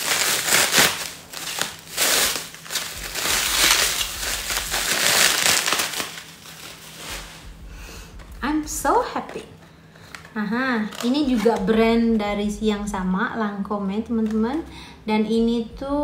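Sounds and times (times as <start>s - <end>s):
plastic packaging crinkling: 0.0s - 8.4s, 9.2s - 12.2s.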